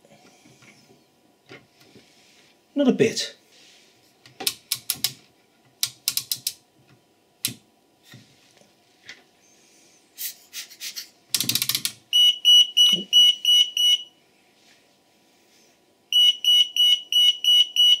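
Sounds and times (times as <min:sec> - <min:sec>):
alarm beeping high tone: 0:12.1 - 0:14.1, 0:16.2 - 0:18.0.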